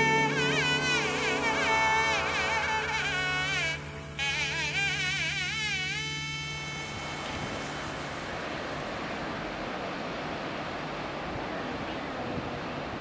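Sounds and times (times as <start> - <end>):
sea surf washing in: 0.0 - 13.0
wind on microphone: 6.0 - 13.0.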